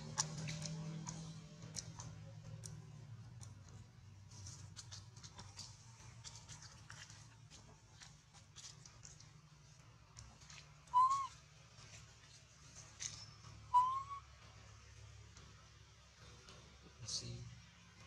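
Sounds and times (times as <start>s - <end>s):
baby monkey cooing: 10.9s - 11.4s, 13.8s - 14.2s.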